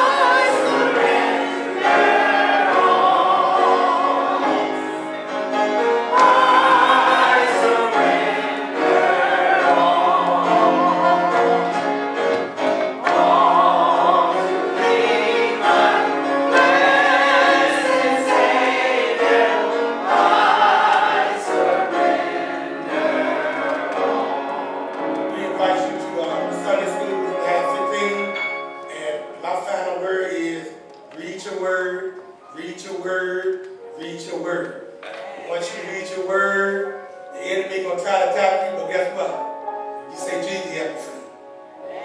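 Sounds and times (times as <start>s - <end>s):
voices singing a hymn: 0.0s - 28.2s, 34.1s - 37.8s.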